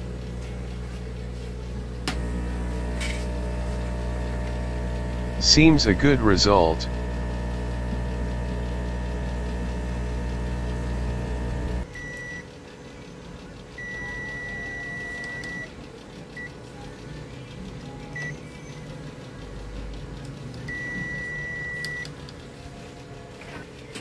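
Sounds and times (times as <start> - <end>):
steady hum: 0.0 - 12.4
multimeter beeps: 11.9 - 12.5, 13.8 - 15.7, 20.7 - 22.1.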